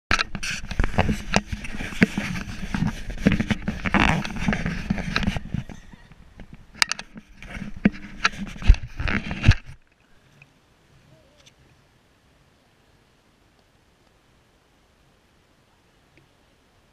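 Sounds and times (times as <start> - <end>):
camera handling rustling: 0.1 - 9.9.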